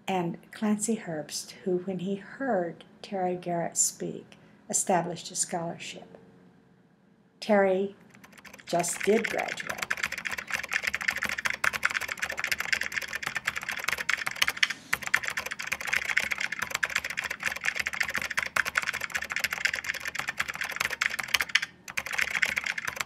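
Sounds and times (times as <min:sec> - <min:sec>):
fast typing on a keyboard: 0:08.0 - 0:23.0.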